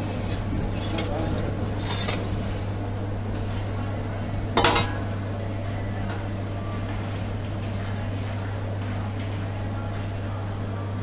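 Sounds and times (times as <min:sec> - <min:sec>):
metal peel clanking on stone: 0:04.6 - 0:05.0.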